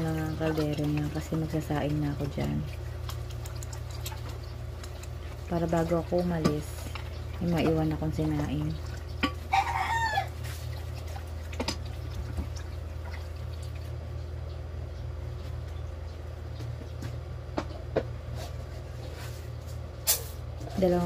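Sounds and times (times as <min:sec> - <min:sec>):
low household hum: 0:00.0 - 0:21.0.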